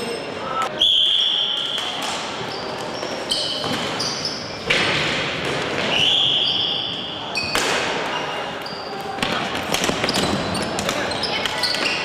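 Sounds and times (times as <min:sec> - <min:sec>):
sneakers squeaking on floor: 0:00.0 - 0:05.1, 0:05.7 - 0:12.0
echoing crowd noise: 0:00.0 - 0:12.0.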